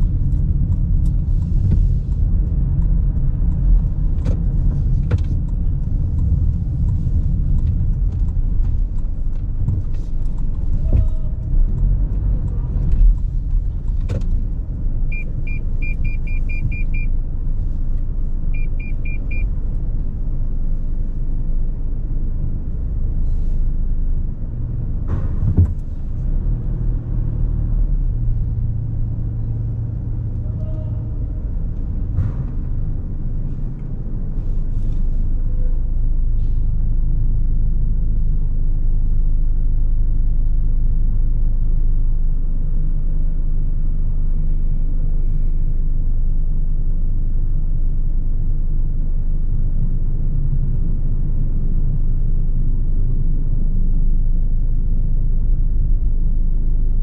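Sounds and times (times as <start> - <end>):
click inside car: 0.0 - 17.1
car engine idling: 0.0 - 57.0
thump inside car: 4.1 - 5.4, 13.9 - 14.5, 25.1 - 26.1.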